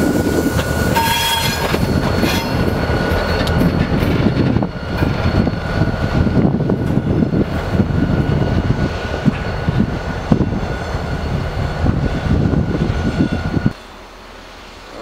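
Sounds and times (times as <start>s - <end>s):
freight train rumbling: 0.0s - 15.0s
wheel squeal: 0.8s - 5.8s.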